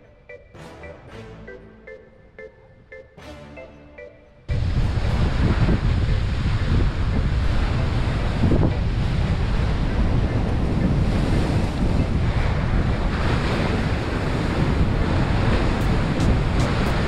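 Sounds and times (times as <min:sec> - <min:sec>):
wind buffeting microphone: 0:04.5 - 0:17.0.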